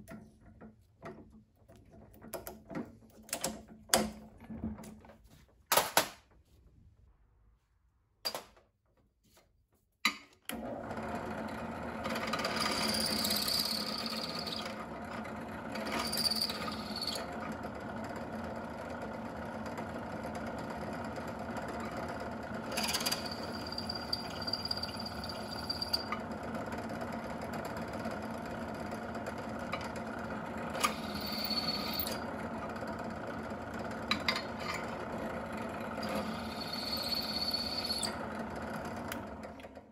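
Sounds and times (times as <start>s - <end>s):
drill press motor humming: 10.5s - 39.9s
drill bit cutting metal whine: 12.2s - 14.8s, 15.8s - 17.3s, 22.7s - 26.2s, 30.8s - 32.2s, 36.0s - 38.2s.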